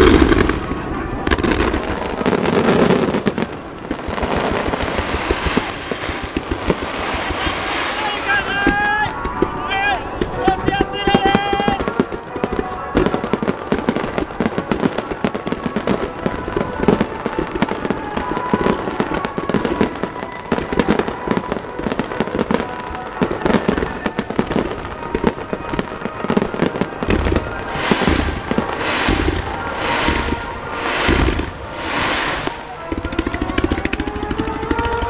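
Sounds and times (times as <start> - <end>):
fireworks bangs and crackles: 0.0 - 35.0
hissing rush: 2.8 - 11.9, 26.4 - 34.8.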